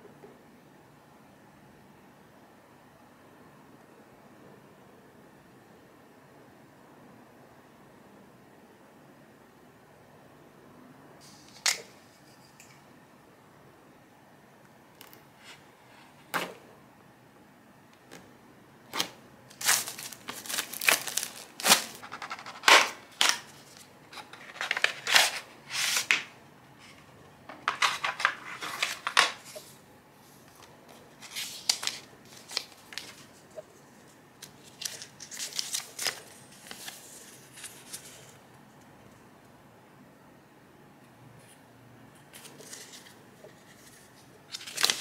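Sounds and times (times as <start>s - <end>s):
paper leaflet rustling: 19.0s - 26.9s, 27.6s - 29.7s, 30.9s - 38.4s, 42.3s - 45.0s.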